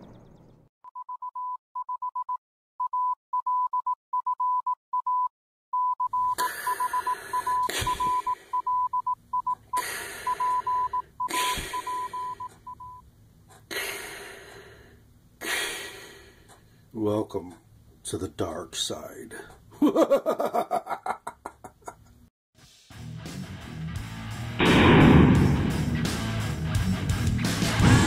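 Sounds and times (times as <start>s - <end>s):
morse code beeps: 0.8s - 13.0s
gunshots with ringing tail: 24.6s - 26.4s.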